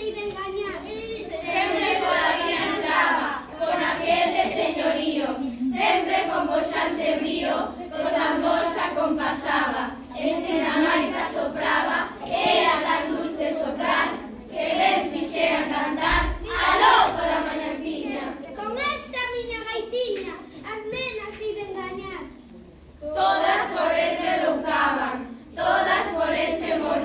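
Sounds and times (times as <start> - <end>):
children singing together: 0.8 - 18.6, 23.0 - 27.0.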